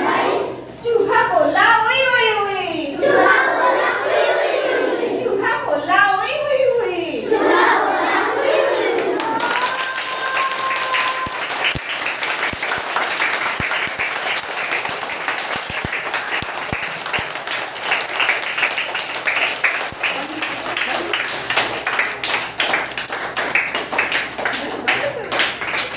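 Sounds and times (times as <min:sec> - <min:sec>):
children clapping: 0:08.8 - 0:25.9.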